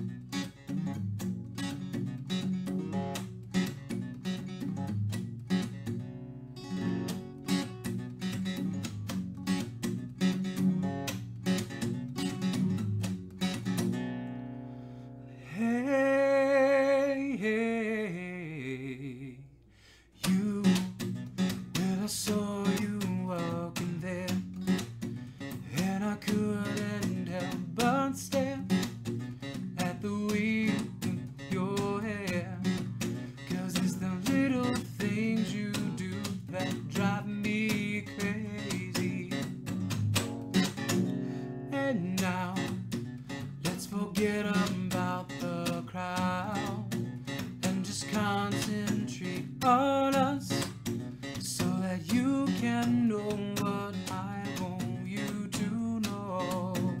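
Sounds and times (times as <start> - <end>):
acoustic guitar strumming: 0.0 - 18.8, 19.8 - 57.0
person singing: 15.4 - 19.5, 20.2 - 21.0, 25.7 - 28.7, 29.8 - 32.8, 33.5 - 39.5, 43.6 - 46.9, 51.5 - 57.0.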